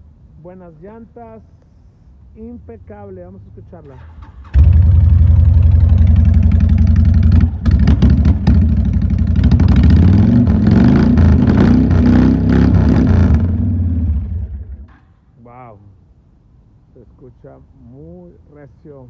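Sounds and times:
motorcycle engine revving: 4.3 - 15.0.

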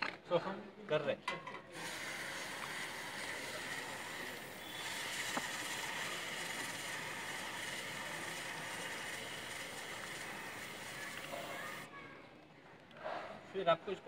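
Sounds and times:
aerosol spray hissing: 1.8 - 11.9.

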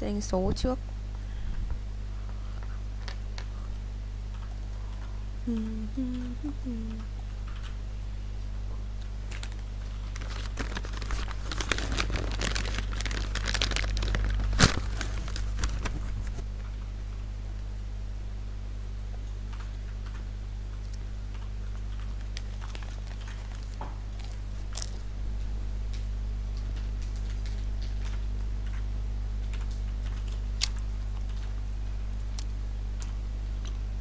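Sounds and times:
steady low hum: 0.0 - 34.0
plastic bag crinkling: 9.2 - 16.5, 22.2 - 25.0.

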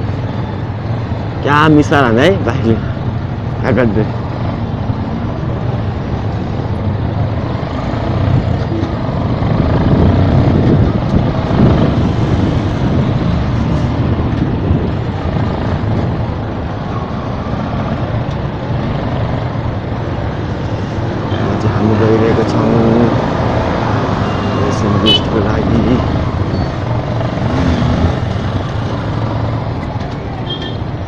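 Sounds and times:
wind and road noise: 0.0 - 31.0
motorcycle engine: 22.7 - 31.0.

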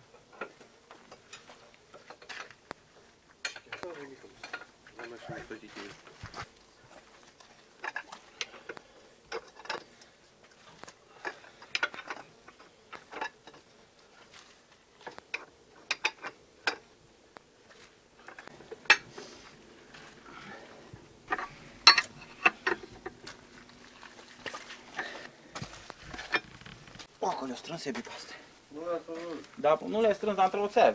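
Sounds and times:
wrenches clinking on wheel nuts: 21.3 - 23.0.

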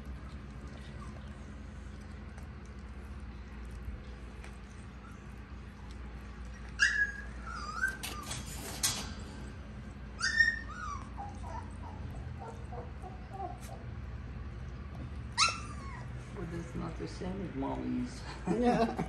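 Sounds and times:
puppy whining: 0.2 - 2.5, 4.0 - 16.4
puppy squealing: 6.6 - 9.0, 10.1 - 13.9, 15.3 - 16.2.

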